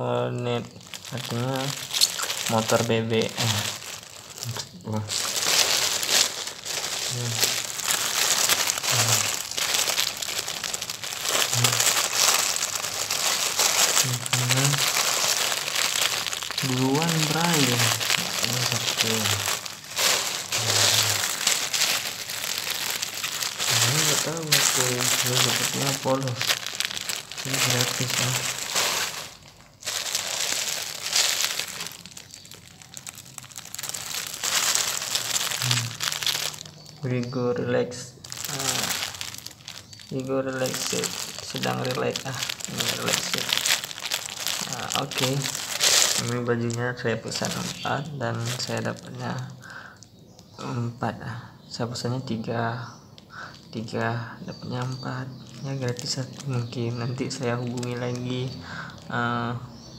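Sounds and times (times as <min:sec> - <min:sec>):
plastic bag crinkling: 0:00.0 - 0:50.7, 0:53.1 - 0:59.9.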